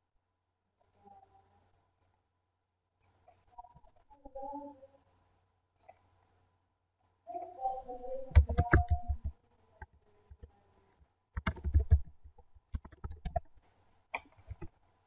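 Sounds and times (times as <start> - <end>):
computer keyboard typing: 8.3 - 10.5, 11.4 - 13.6.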